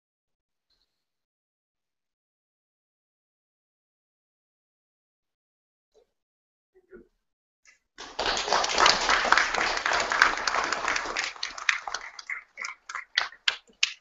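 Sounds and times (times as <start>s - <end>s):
audience applauding: 8.0s - 14.0s.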